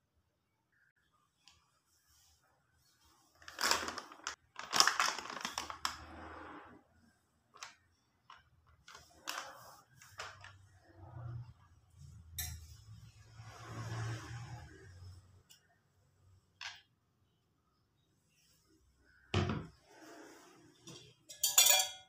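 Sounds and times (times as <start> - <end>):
plastic packet crinkling: 3.4 - 6.0.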